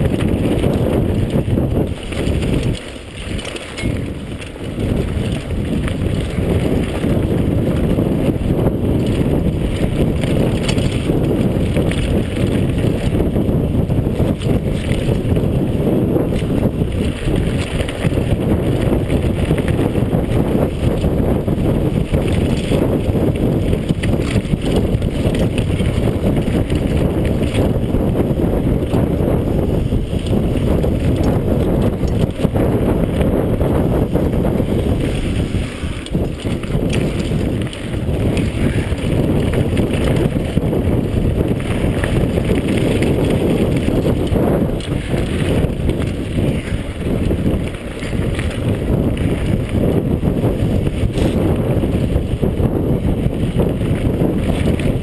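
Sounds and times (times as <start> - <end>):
bike rattling and knocking: 0.0 - 55.0
wind rushing over microphone: 0.0 - 55.0.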